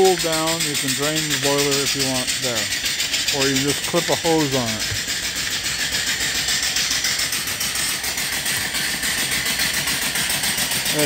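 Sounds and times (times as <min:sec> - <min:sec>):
steam engine running: 0:00.0 - 0:11.0.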